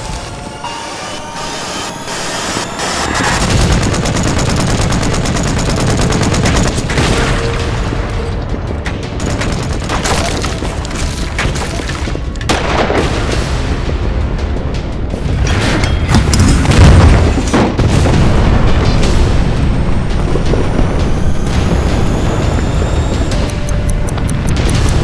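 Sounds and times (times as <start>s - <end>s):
film score music: 0.0s - 25.0s
explosions booming: 12.5s - 14.1s, 16.4s - 23.4s
low rumble: 16.8s - 25.0s.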